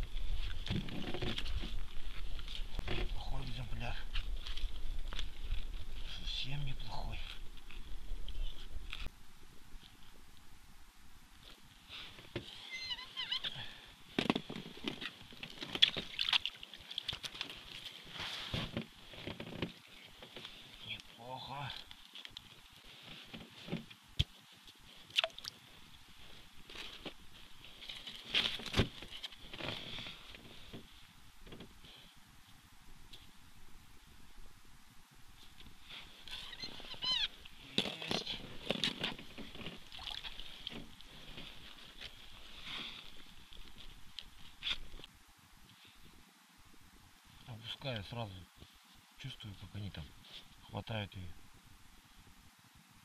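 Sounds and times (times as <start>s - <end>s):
short squeaks: 36.3s - 37.3s.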